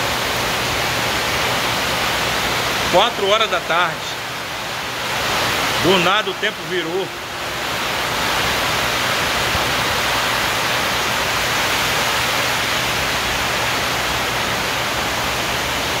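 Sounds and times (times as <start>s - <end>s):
heavy rain pouring: 0.0s - 16.0s.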